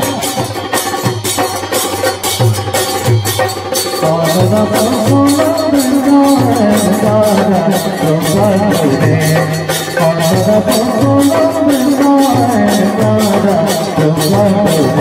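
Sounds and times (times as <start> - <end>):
barrel drums beating: 0.0 - 15.0
person singing melody: 4.0 - 15.0.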